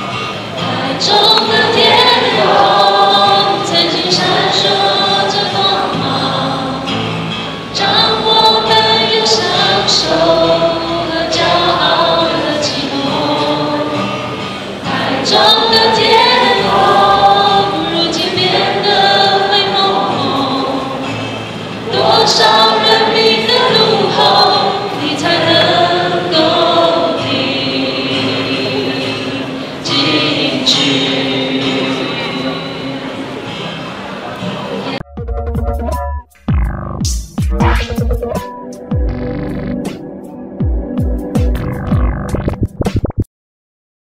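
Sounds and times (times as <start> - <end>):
acoustic guitar: 0.0 - 43.2
woman singing into microphone: 0.6 - 6.8, 7.8 - 21.1, 21.9 - 33.0.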